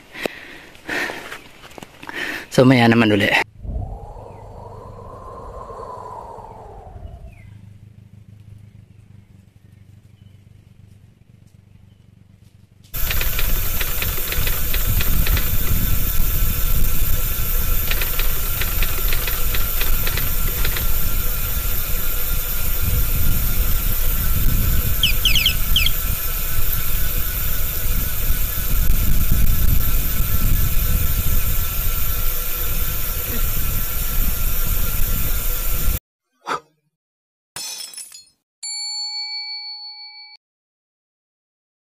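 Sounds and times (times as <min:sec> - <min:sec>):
wind buffeting microphone: 0:03.5 - 0:07.8, 0:13.0 - 0:36.0
bicycle riding on road: 0:07.6 - 0:36.0
short high chirp: 0:25.0 - 0:26.0.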